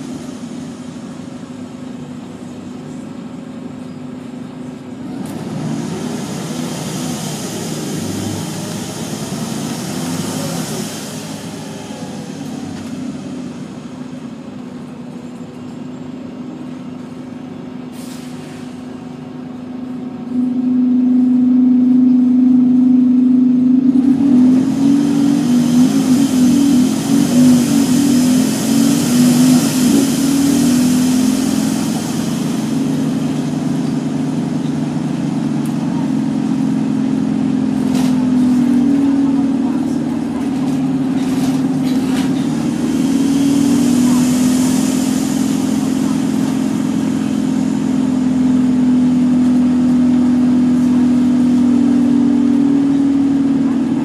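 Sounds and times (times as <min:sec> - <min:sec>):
bus engine humming: 0:00.0 - 0:54.0
hiss: 0:05.6 - 0:13.6, 0:24.6 - 0:34.4, 0:41.6 - 0:47.5.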